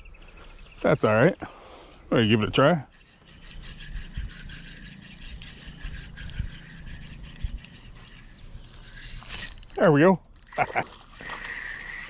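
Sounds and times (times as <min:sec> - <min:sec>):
insects chirring: 0:00.0 - 0:12.0
fishing rod and reel handled: 0:07.3 - 0:12.0.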